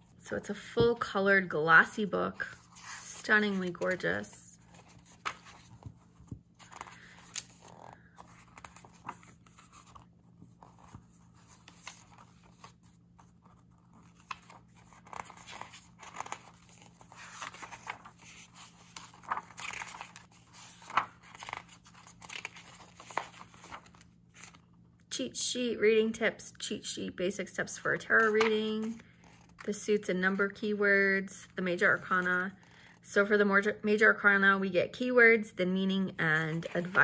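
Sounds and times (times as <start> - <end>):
book pages turning: 1.9 - 24.7, 28.0 - 29.8, 36.4 - 37.0.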